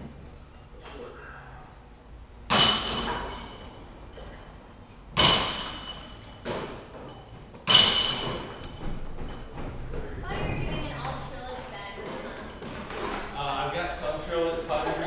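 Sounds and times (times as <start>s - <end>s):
disc golf putts hitting chains: 5.2s - 9.3s.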